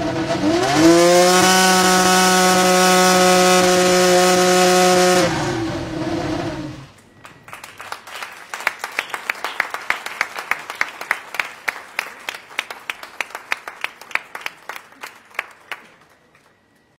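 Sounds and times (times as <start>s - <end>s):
racing car engine winding down: 0.0s - 7.0s
people applauding: 7.2s - 16.9s.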